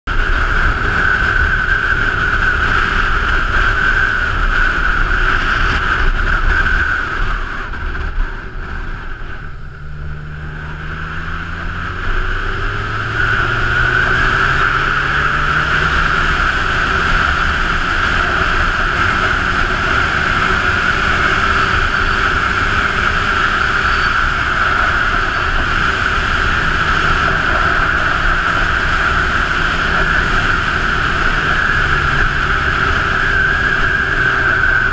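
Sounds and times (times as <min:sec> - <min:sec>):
motorcycle engine: 0:00.0 - 0:34.9
wind rush: 0:00.1 - 0:34.9.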